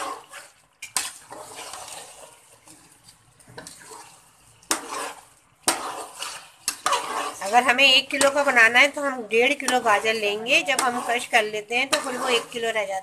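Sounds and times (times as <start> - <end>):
liquid pouring into pot: 0.0 - 7.4
metal spoon stirring in pot: 0.0 - 13.0.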